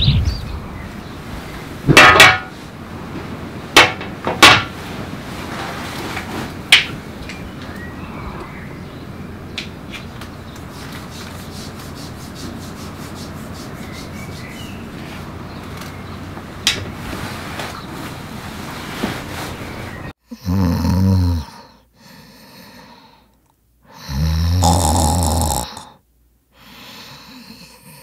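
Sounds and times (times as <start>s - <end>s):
steady background noise: 0.0s - 20.2s.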